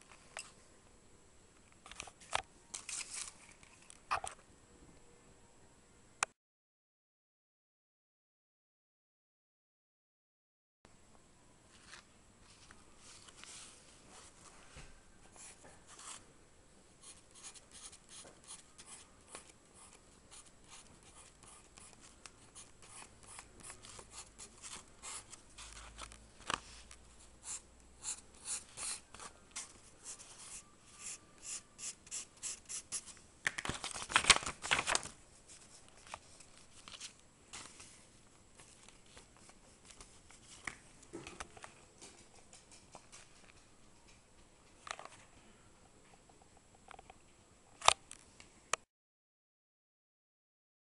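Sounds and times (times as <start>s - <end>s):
pencil scratching on paper: 17.0s - 25.8s, 27.4s - 33.1s.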